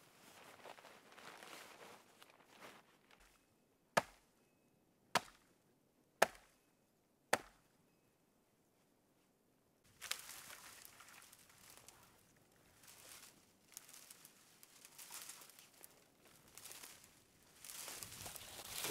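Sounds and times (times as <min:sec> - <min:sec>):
soft rustling of movement: 0:00.0 - 0:03.4, 0:09.9 - 0:18.9
axe chopping wood: 0:04.0 - 0:04.2, 0:05.2 - 0:05.5, 0:06.2 - 0:06.5, 0:07.3 - 0:07.6.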